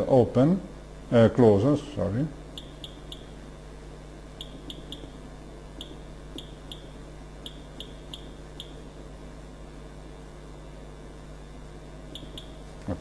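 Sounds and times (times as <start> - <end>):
low steady hum: 0.0 - 13.0
short high keypad beeps: 5.8 - 8.8, 12.2 - 12.6.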